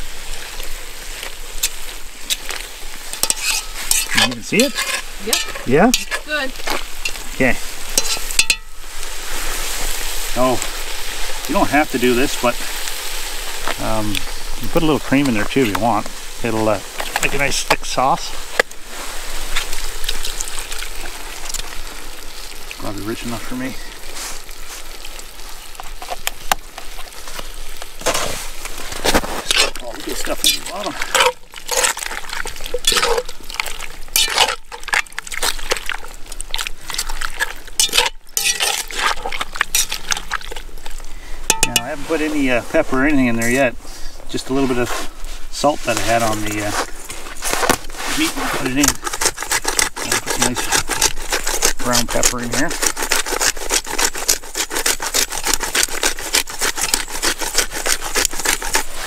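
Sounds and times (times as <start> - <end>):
liquid food bubbling: 0.0 - 59.0
wet sloshing and scraping: 0.0 - 59.0
pepper mill grinding: 37.8 - 40.3, 48.5 - 59.0.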